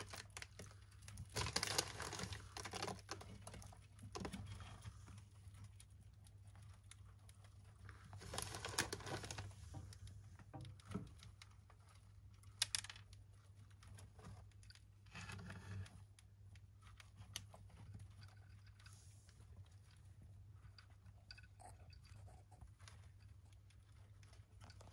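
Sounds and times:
hamsters rustling in bedding: 0:00.0 - 0:10.4.

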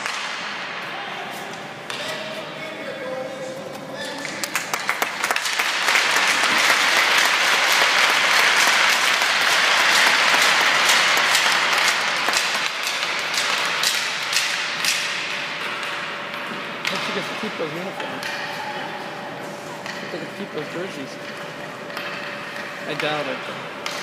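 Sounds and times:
crowd applause: 0:04.4 - 0:13.4.

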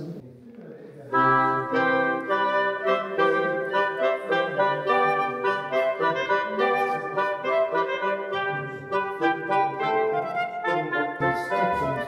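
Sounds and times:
wind instrument melody: 0:01.1 - 0:12.0.

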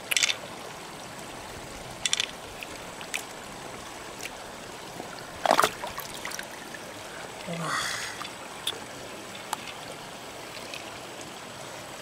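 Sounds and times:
stream water trickling: 0:00.0 - 0:12.0
shells clicking and splashing: 0:00.1 - 0:00.4, 0:02.0 - 0:02.4.

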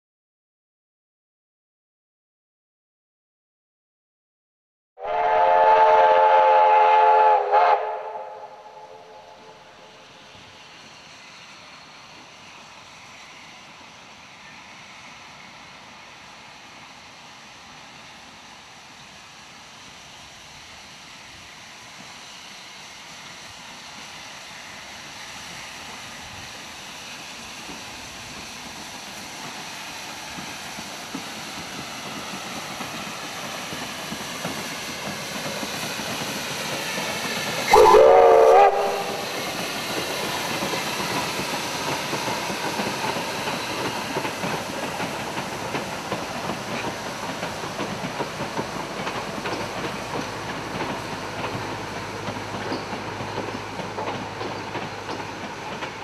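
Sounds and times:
steam whistle blast: 0:05.0 - 0:09.7, 0:37.7 - 0:39.5
steam locomotive hauling train: 0:05.0 - 0:56.0.

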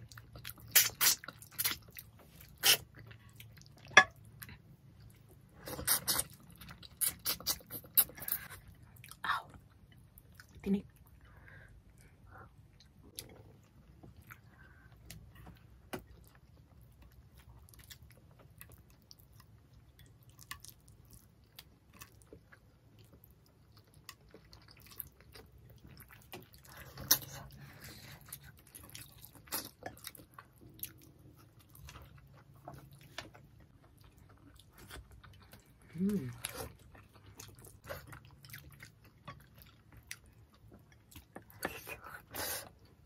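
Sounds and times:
quiet chewing: 0:00.0 - 0:43.0
mouth smacks: 0:02.5 - 0:02.9.

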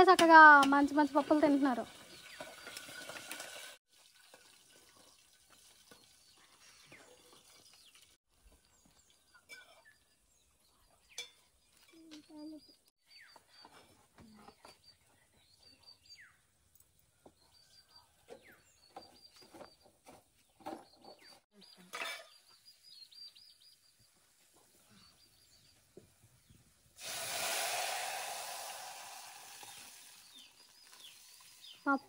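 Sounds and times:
birds chirping: 0:05.9 - 0:26.9, 0:29.6 - 0:32.0
cooking knocks and clinks: 0:11.1 - 0:12.2
spices sizzling in hot oil: 0:27.0 - 0:32.0.

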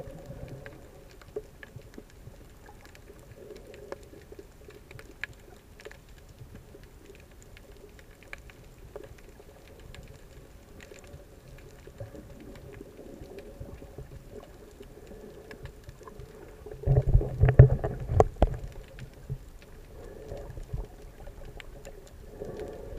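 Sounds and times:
underwater low hum: 0:00.0 - 0:22.9
small clicks: 0:00.2 - 0:22.9
rushing water: 0:07.0 - 0:22.9.

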